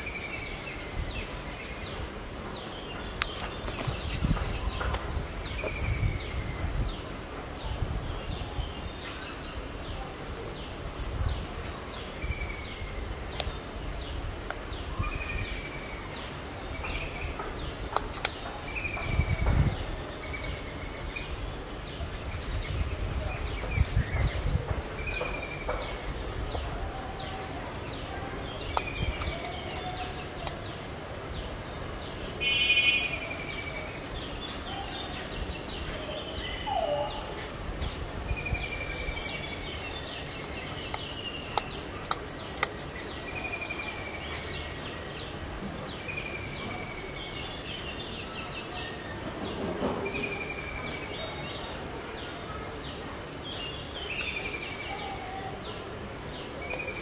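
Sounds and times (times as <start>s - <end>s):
high thin bird chirps: 28.4s - 30.8s, 36.8s - 43.1s.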